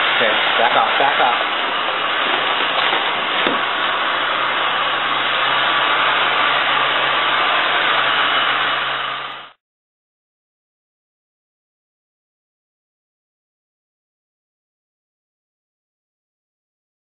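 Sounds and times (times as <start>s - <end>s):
heat gun blowing hot air: 0.0s - 9.6s.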